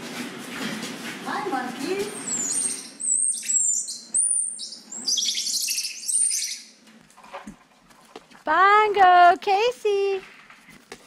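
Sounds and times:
monkeys chirping and squeaking: 1.8 - 6.8.

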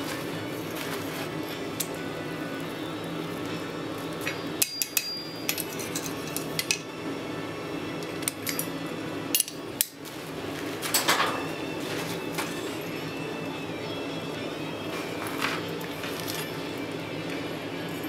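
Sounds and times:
steady low hum: 0.0 - 18.0
tongs clinking against anvil: 4.2 - 6.9, 8.2 - 10.0.

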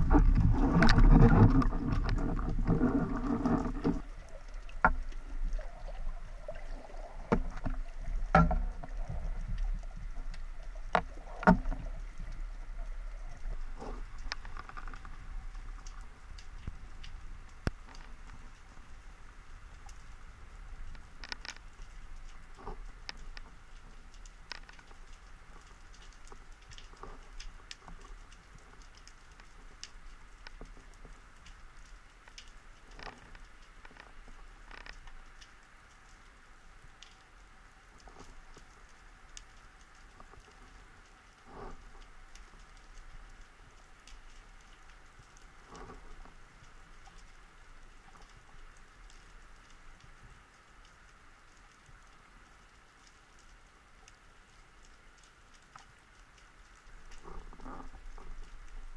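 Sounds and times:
underwater low rumble: 0.0 - 35.4
faint steady hiss: 0.0 - 58.9.

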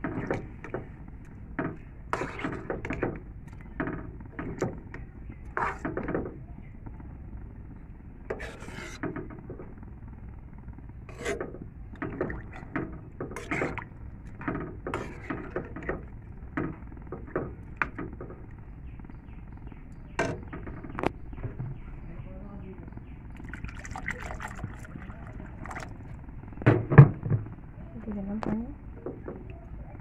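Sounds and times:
metal spatula scraping a metal pan: 8.3 - 9.2.

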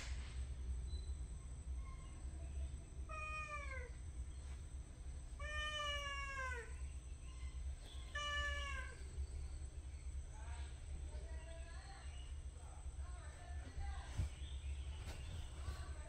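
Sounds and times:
cat meowing: 3.1 - 4.0, 5.4 - 6.8, 7.4 - 9.1.

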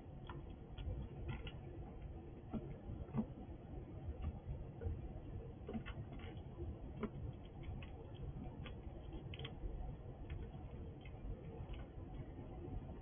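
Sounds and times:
squirrel cracking and chewing seeds: 4.2 - 12.7.

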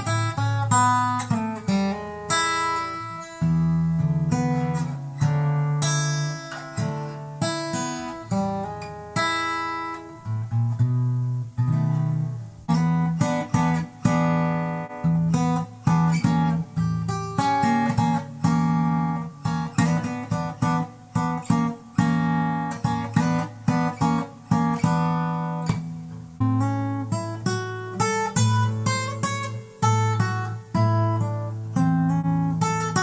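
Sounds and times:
acoustic guitar blues: 0.0 - 33.0.

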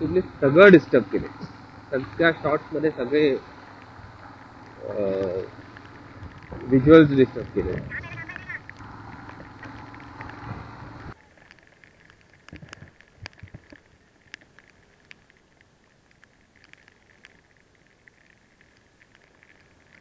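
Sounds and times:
motorcycle engine and wind: 0.0 - 11.2
rain ticking on camera: 0.0 - 20.0.

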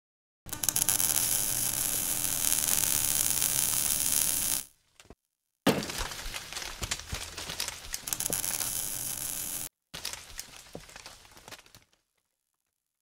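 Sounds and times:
crackling electrical static: 0.5 - 4.8, 8.0 - 9.7.

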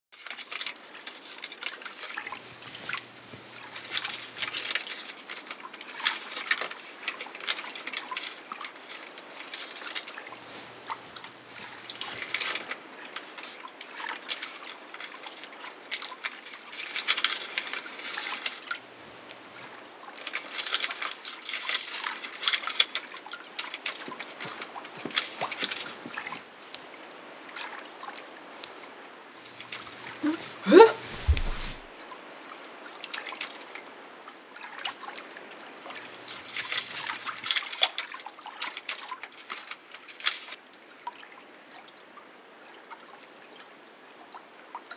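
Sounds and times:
water trickling and sloshing: 0.1 - 44.9
paper crackling: 0.2 - 13.6, 29.5 - 31.9, 36.0 - 38.0.

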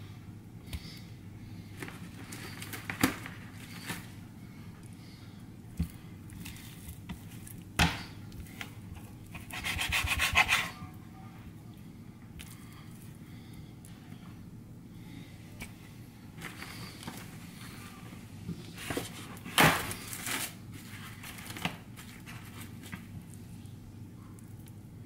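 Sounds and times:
knife sawing through chicken: 9.3 - 10.8.

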